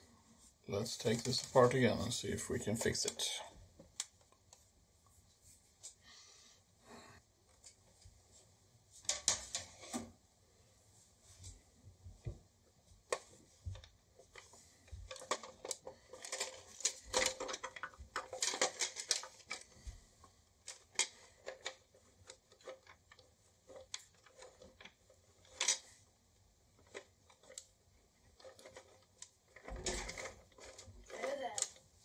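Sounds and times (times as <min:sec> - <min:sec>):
plastic toy parts clicking: 0:13.1 - 0:19.8, 0:20.6 - 0:26.0, 0:26.8 - 0:31.9.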